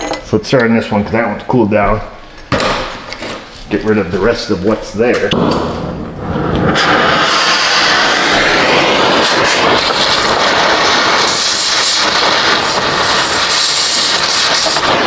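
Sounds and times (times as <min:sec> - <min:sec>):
cutting torch hissing: 0:05.6 - 0:15.0.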